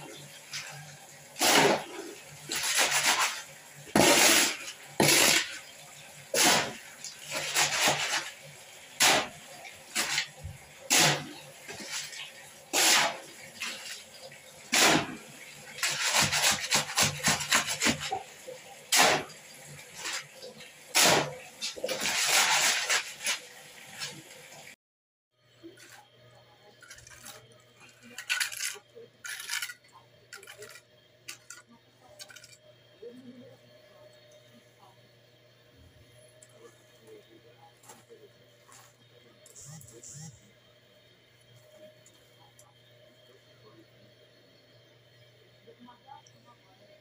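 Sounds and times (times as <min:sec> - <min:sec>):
shovel scraping wet concrete: 0:01.4 - 0:03.4, 0:04.0 - 0:05.6, 0:06.3 - 0:08.3, 0:09.0 - 0:09.4, 0:10.9 - 0:13.8, 0:15.8 - 0:18.2, 0:21.0 - 0:23.4, 0:28.0 - 0:31.6.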